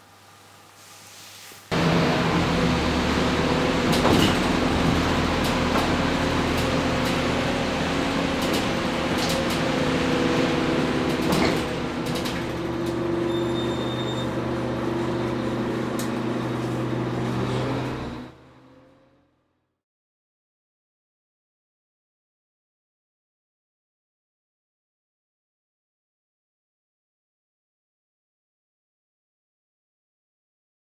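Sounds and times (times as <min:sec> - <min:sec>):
road noise: 0:01.7 - 0:19.6
bus engine hum: 0:01.7 - 0:19.8
short electronic beep: 0:13.3 - 0:14.3.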